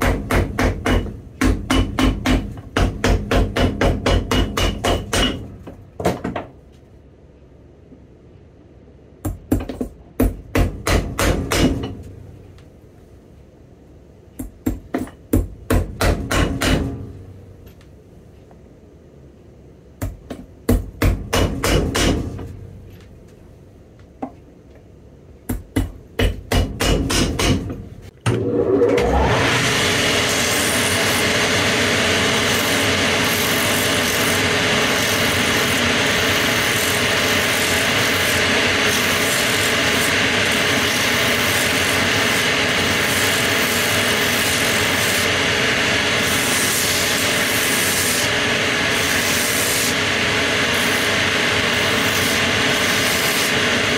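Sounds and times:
shoe-finishing machine whine: 27.5 - 53.9.

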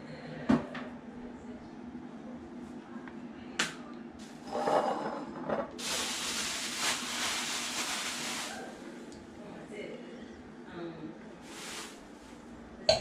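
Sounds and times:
steady hiss: 5.8 - 8.8, 11.5 - 12.2.

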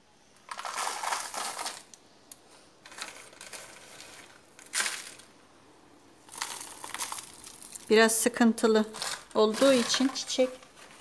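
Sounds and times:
plastic bottle crinkling: 0.4 - 2.0, 2.8 - 5.3, 6.2 - 8.1, 8.8 - 11.0
potting soil dropping: 0.4 - 2.0, 2.8 - 5.4, 6.2 - 11.0.

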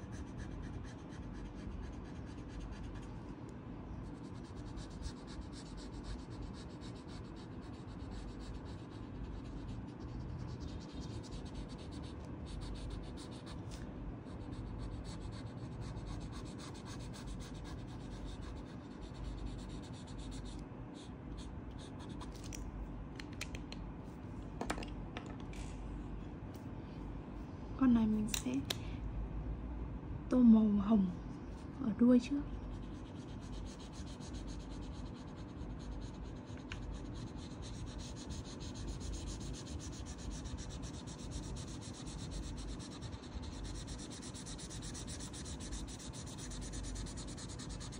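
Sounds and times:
marker scratching on paper: 0.0 - 3.1, 4.0 - 22.3, 32.7 - 47.9.

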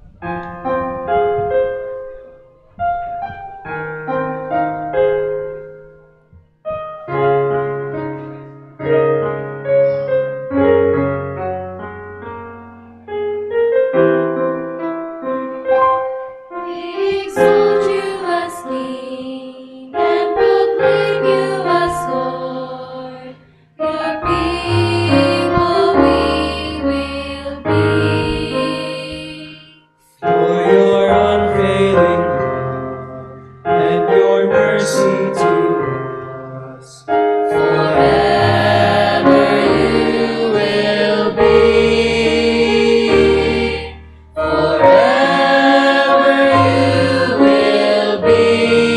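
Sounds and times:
piano playing chords: 0.0 - 48.9.

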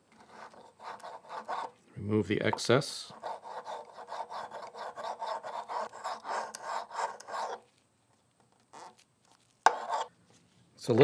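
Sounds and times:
scraping filler off wood: 0.2 - 1.8, 3.1 - 7.7, 8.7 - 10.1.

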